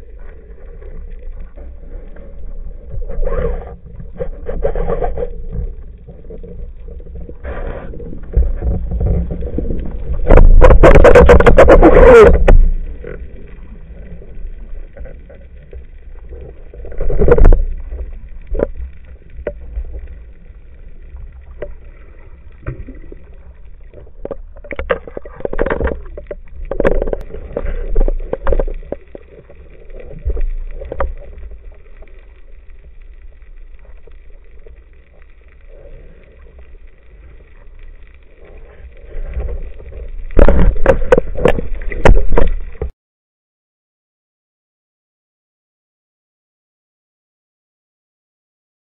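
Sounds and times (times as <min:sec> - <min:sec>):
low underwater rumble: 0:00.0 - 0:42.9
bursts of water movement: 0:35.6 - 0:42.9.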